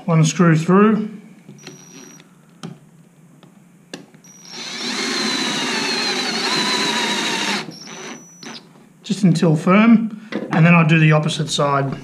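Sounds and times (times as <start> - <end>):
power drill driving a screw: 1.6 - 2.2, 4.2 - 8.7.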